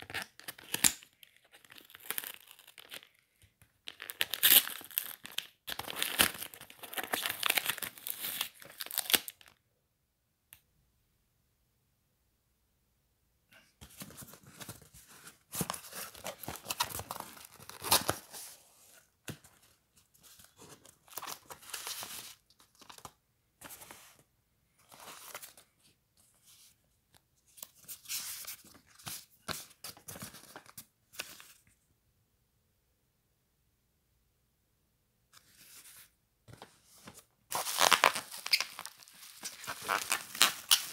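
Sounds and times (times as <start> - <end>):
paper and plastic wrapping rustling: 37.0 - 40.9.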